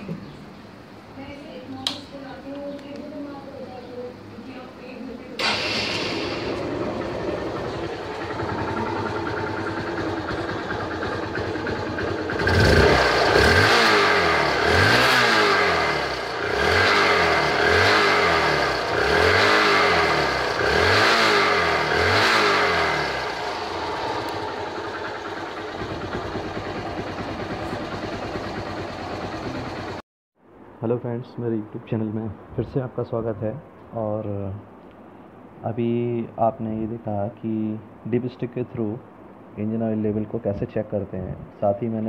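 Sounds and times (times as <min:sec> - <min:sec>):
motorcycle engine idling and revving: 0:05.4 - 0:30.0.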